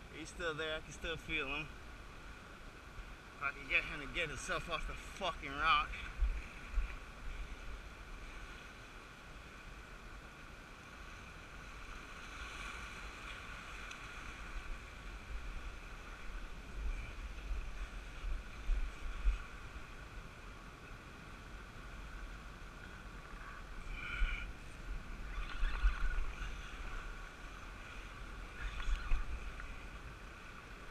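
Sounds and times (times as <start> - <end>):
wind buffeting microphone: 23.8 - 30.1.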